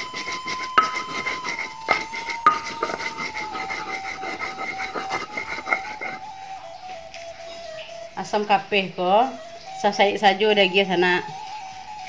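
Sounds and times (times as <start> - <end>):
stone grinding on stone: 0.0 - 6.4
thin steady whine: 0.0 - 12.0.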